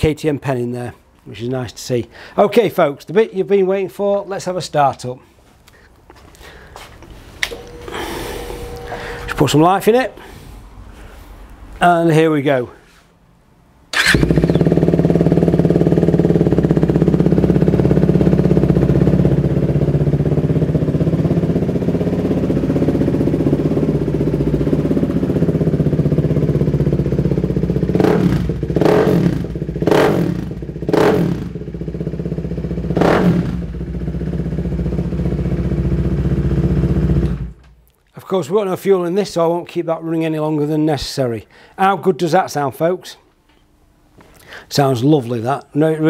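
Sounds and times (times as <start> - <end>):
motorcycle engine starting: 7.4 - 9.6, 13.9 - 37.7
engine revving: 13.9 - 21.6, 27.8 - 32.0, 32.7 - 33.9
motorcycle engine idling: 14.0 - 37.5.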